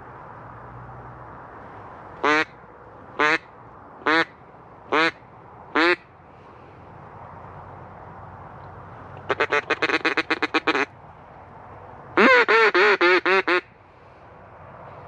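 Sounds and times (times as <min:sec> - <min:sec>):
duck quacking: 0:09.3 - 0:10.9, 0:12.2 - 0:13.6.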